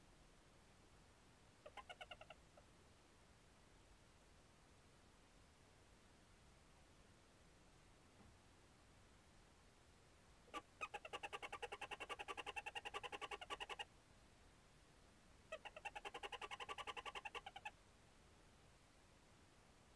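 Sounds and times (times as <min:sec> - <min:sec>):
owl twittering call: 0:01.6 - 0:02.4, 0:10.5 - 0:13.9, 0:15.5 - 0:17.7.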